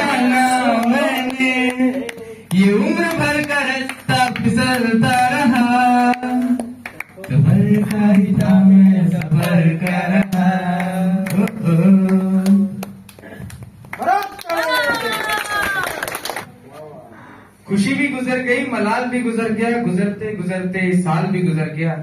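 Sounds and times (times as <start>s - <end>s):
young man singing into microphone: 0.0s - 12.8s.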